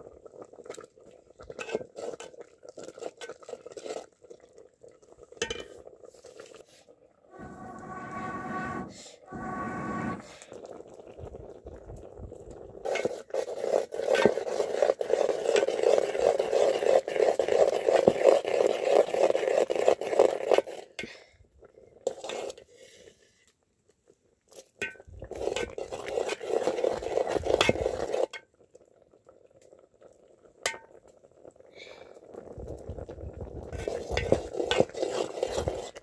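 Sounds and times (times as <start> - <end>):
ladle stirring and scraping pot: 0.5 - 6.6, 7.3 - 11.4, 12.0 - 21.0, 22.0 - 22.6, 24.5 - 28.4, 32.8 - 36.0.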